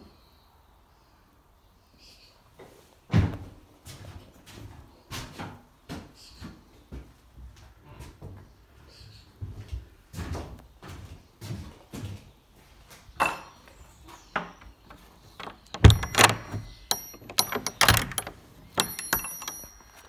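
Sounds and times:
wooden door shutting: 14.3 - 20.0
metal bolt sliding and rattling: 14.5 - 20.0.

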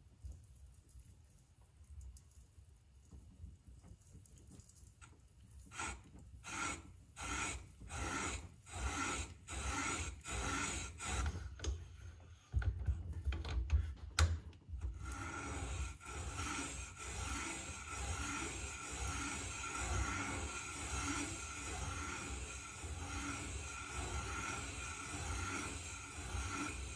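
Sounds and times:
valve seat cutter scraping metal: 5.8 - 11.7, 15.0 - 26.9.

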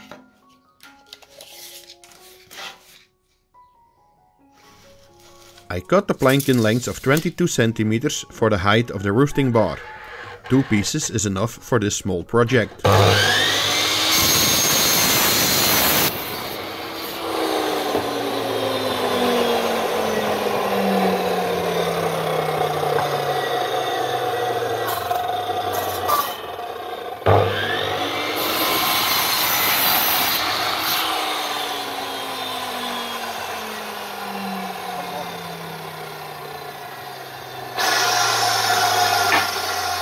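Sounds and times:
mitre saw cutting wood: 9.6 - 11.4, 12.8 - 40.0.

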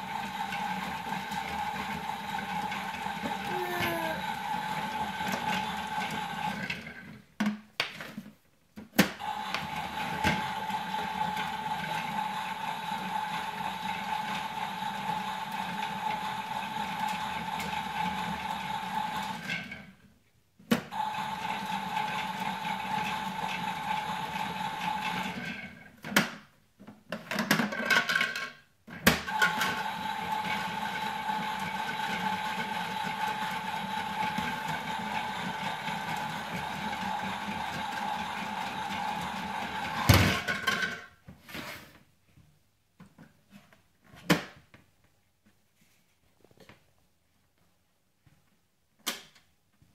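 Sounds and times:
toy washing machine whirring: 0.0 - 7.2, 9.2 - 19.9, 20.9 - 26.1, 27.3 - 41.2.

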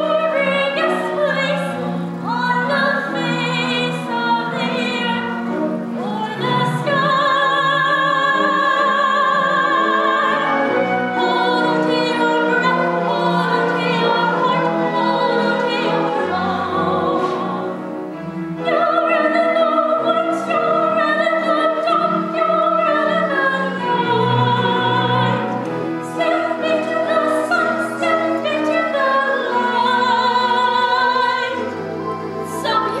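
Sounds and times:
woman singing opera: 0.0 - 17.8, 18.6 - 33.0
instrumental accompaniment: 0.0 - 33.0.

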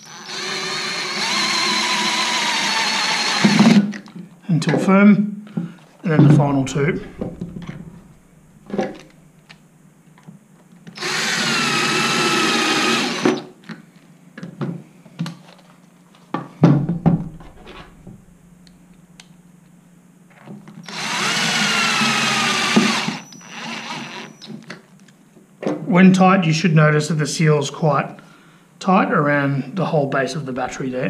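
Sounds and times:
cordless drill whining: 0.0 - 4.0, 11.0 - 13.5, 20.8 - 24.5.

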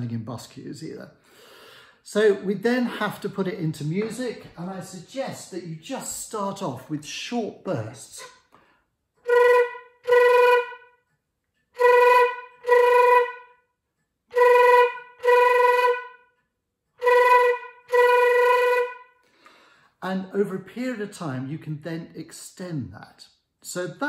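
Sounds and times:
flute flutter-tongued notes: 9.2 - 11.0, 11.8 - 13.6, 14.3 - 16.3, 17.0 - 19.2.

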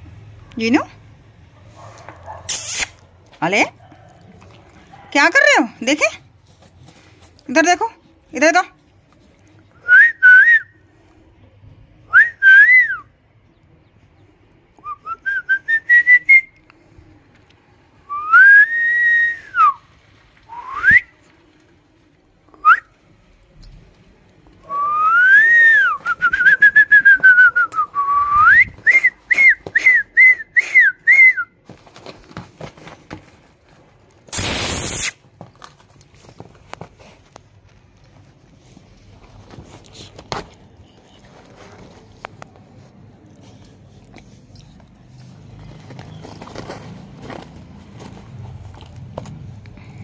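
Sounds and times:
person whistling a tune: 18.1 - 19.8, 20.5 - 21.1, 24.7 - 31.5.

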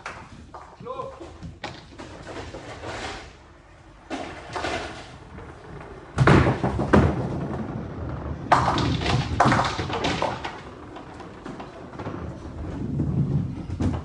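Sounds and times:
bowling ball rolling: 0.0 - 14.0
bowling balls thudding on lane: 4.1 - 14.0.

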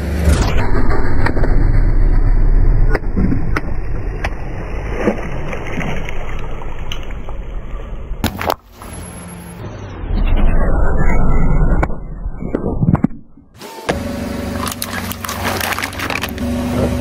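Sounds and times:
water splashing: 2.9 - 7.5, 14.5 - 16.7
car tyre rolling through water: 3.0 - 7.5, 14.5 - 17.0
car rolling on asphalt: 13.9 - 17.0.

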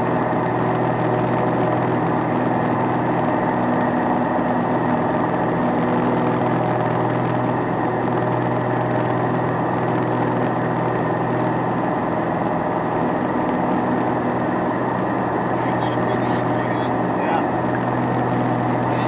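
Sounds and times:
propeller aircraft engine droning: 0.0 - 19.0.

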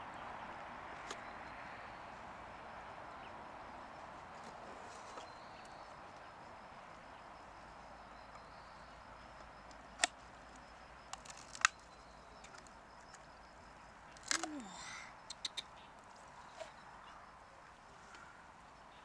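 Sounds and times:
small ticks: 9.4 - 16.7.

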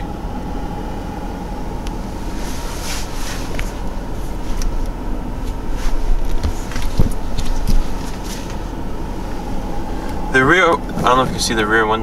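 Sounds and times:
car cabin low hum: 0.0 - 12.0.

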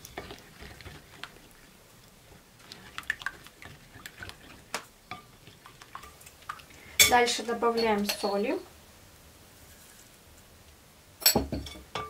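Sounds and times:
wet squishing of stirred dough: 0.0 - 7.4.

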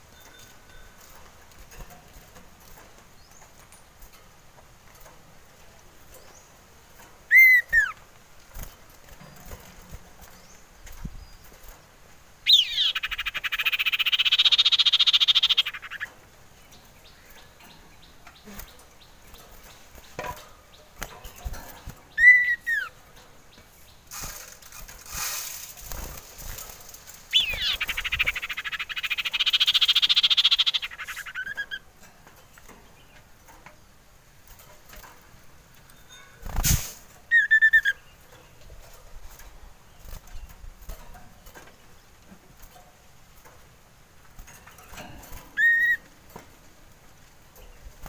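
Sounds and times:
bird chattering trill: 7.3 - 8.0, 12.4 - 16.1, 27.3 - 31.8, 37.3 - 38.2, 45.6 - 46.1
bird whistled notes: 7.3 - 8.0, 37.3 - 38.0, 45.6 - 46.0.

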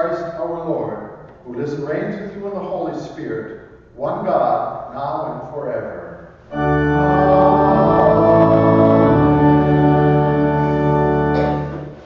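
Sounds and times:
church organ chords: 6.4 - 12.0
congregation singing: 6.5 - 12.0.

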